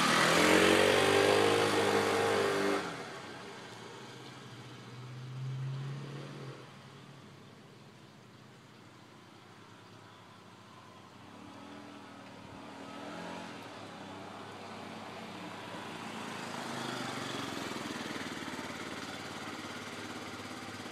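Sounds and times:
scooter engine approaching: 0.0 - 4.6, 11.3 - 20.9.

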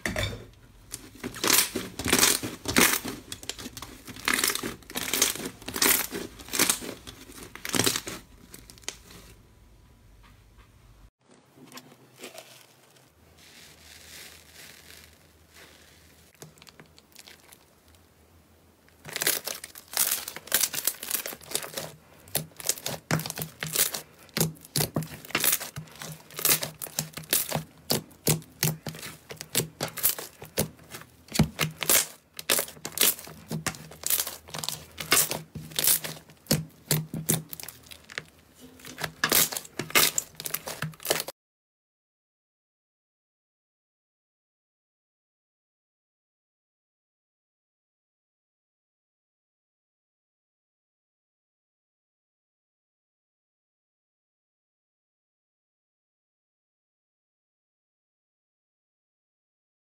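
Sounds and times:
faint handling of slime: 0.6 - 9.5, 11.3 - 18.1, 18.9 - 41.3
slime crackling and popping: 0.9 - 9.3, 13.4 - 17.9, 18.9 - 41.3.

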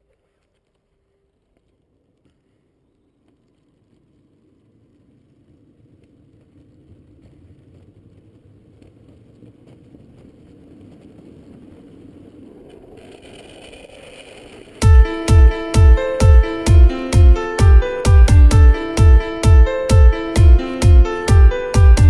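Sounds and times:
wheels rumbling on asphalt: 4.3 - 14.8.

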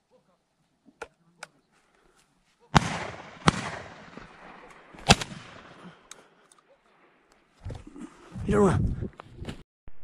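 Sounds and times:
rolling echo of gunshots: 2.8 - 6.0
shotgun shots: 2.8 - 6.0.

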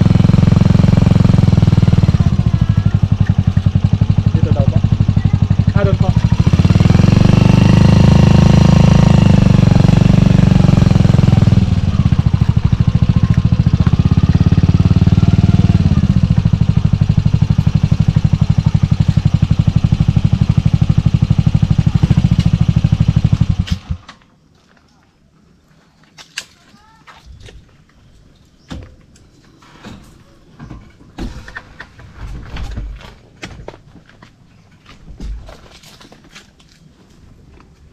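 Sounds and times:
motorcycle engine running: 0.0 - 24.1.

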